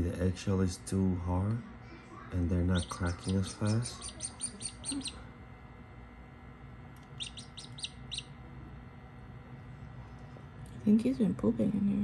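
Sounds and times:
chick peeping: 0:02.7 - 0:05.2, 0:07.2 - 0:08.3.

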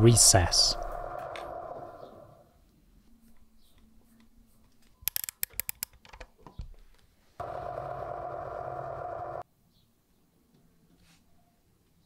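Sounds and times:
small metallic clicks: 0:04.8 - 0:06.6
lathe motor running: 0:07.4 - 0:09.4.

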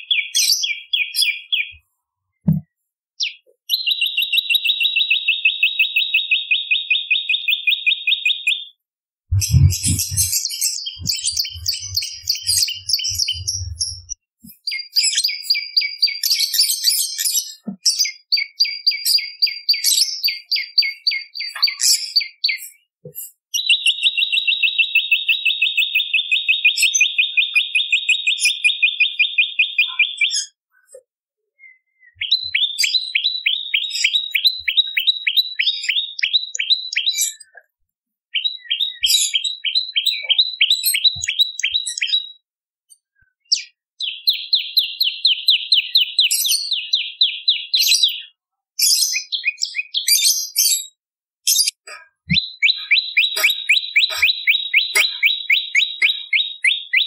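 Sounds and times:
bird calling in fast high trills: 0:09.4 - 0:14.2, 0:51.7 - 0:57.0
high bird chips: 0:09.4 - 0:14.2, 0:51.5 - 0:56.8.

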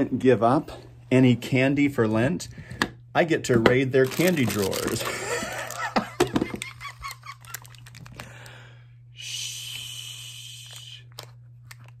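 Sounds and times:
person shushing: 0:09.2 - 0:11.1.

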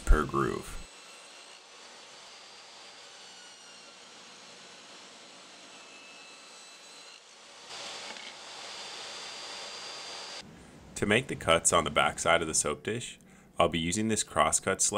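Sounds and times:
table saw cutting wood: 0:00.0 - 0:10.4.

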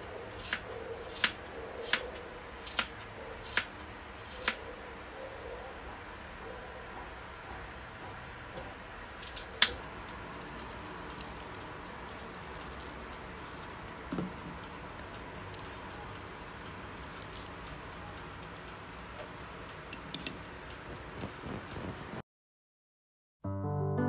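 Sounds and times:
toaster oven humming: 0:07.3 - 0:22.2
toaster oven timer ticking: 0:09.5 - 0:22.2.

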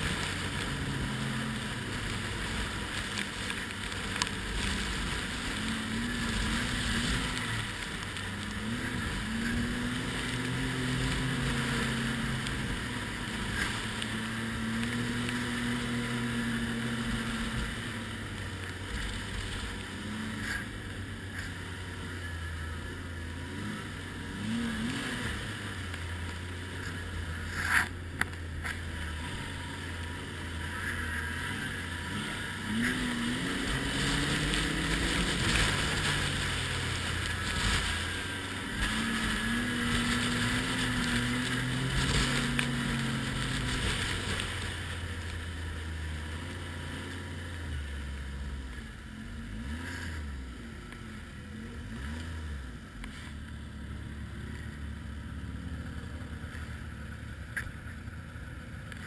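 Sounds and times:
snowmobile engine running: 0:00.0 - 0:59.0.

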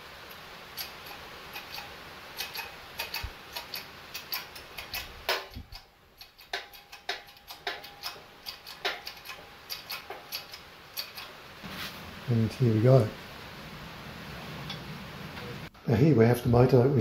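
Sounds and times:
metallic clicks and ticks: 0:00.3 - 0:11.4.

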